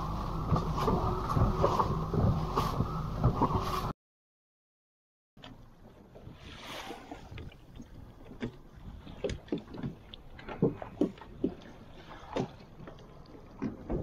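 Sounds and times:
water splashing: 5.9s - 14.0s.

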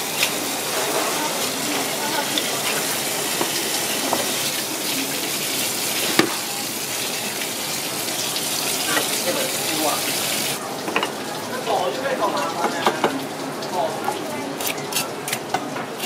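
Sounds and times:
tap water pouring and splashing: 0.0s - 16.0s
fish knocking on cutting board: 6.0s - 6.4s.

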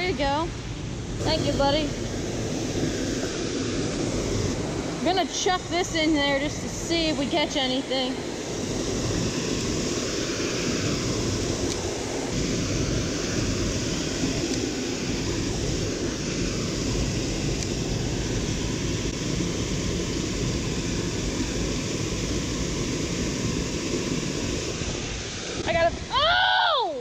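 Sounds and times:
small waterfall rushing: 0.0s - 27.0s.

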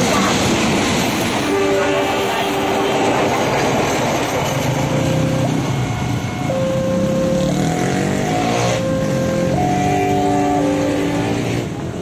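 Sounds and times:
motorcycle engines idling and revving: 3.5s - 12.0s
two-tone level-crossing alarm: 4.6s - 11.4s.

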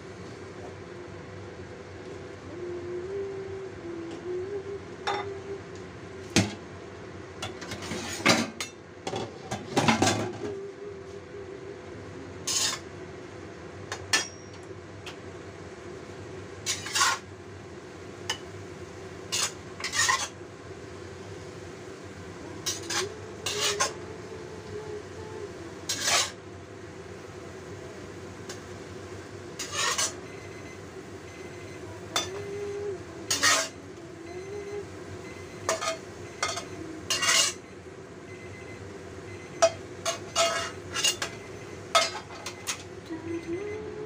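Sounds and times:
steady low hum: 0.0s - 44.0s
spatula scraping a metal wok: 7.8s - 8.3s, 12.4s - 12.9s, 16.7s - 17.3s, 19.3s - 20.4s, 22.6s - 24.0s, 25.9s - 26.4s, 29.6s - 30.2s, 33.3s - 33.8s, 35.7s - 37.6s, 40.1s - 41.3s.

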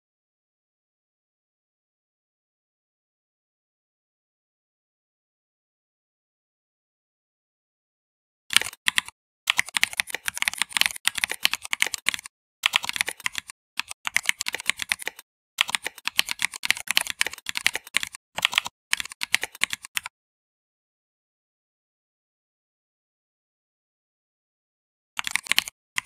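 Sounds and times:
typing on keyboard: 8.5s - 20.1s, 25.2s - 25.8s.

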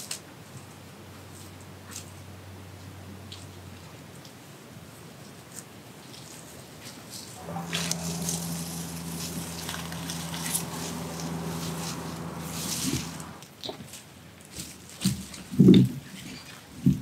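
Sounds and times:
low hum: 7.4s - 13.4s
netting dragged over leaves: 7.4s - 13.4s.

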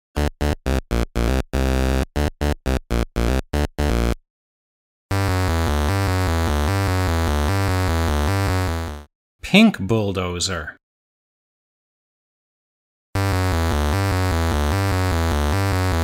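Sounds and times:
buzzing synth pattern: 0.2s - 4.2s, 5.1s - 9.1s, 13.2s - 16.0s
staccato chiptune notes: 0.2s - 4.2s, 5.1s - 9.0s, 13.2s - 16.0s.

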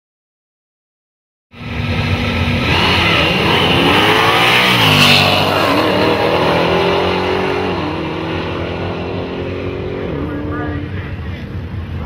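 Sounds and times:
drag cars accelerating hard: 1.6s - 12.0s.

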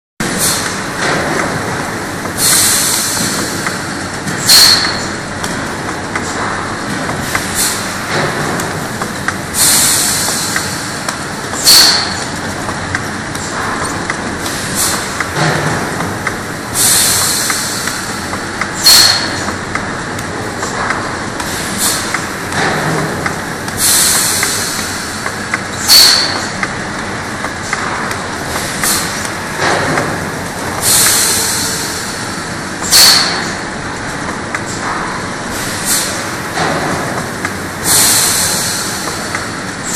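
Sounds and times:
labeling machine running: 0.2s - 39.9s
sharp machine clack: 4.4s - 5.2s, 11.5s - 12.5s, 13.3s - 19.6s, 20.6s - 26.8s, 30.8s - 33.6s
short pneumatic hiss: 11.6s - 12.1s, 32.9s - 33.3s, 35.5s - 36.2s, 37.8s - 39.3s.

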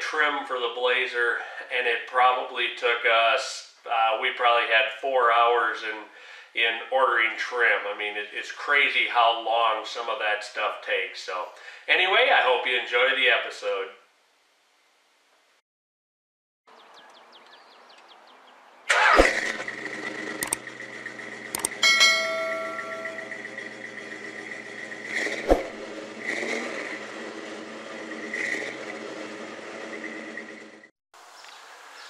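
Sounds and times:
car engine starting and idling: 18.9s - 30.9s
ringing chime: 21.7s - 23.5s.

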